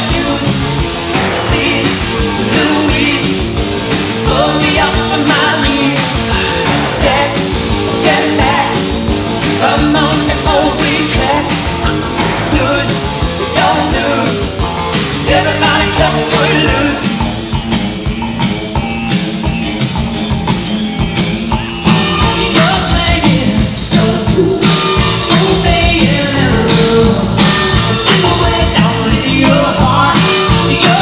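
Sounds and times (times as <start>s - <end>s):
rock song with singing and guitar: 0.0s - 31.0s.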